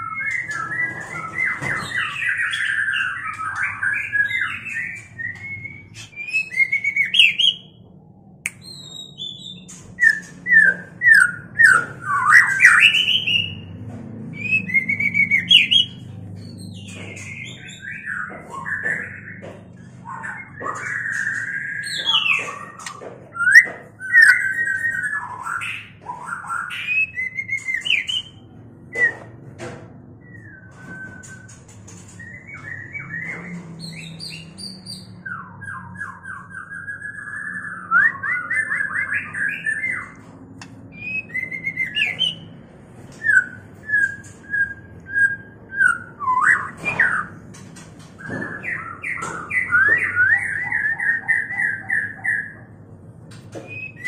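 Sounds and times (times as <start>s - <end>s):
birds singing whistled phrases: 0.0s - 7.8s, 8.5s - 13.7s, 14.4s - 29.4s, 32.2s - 47.4s, 48.2s - 52.7s, 53.6s - 54.0s
birds calling repeated notes: 14.6s - 29.4s.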